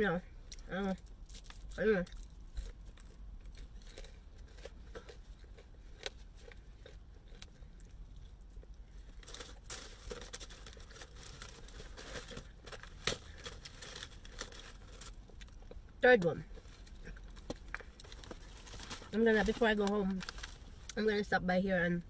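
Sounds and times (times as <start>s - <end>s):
faint chewing: 0.5s - 15.9s.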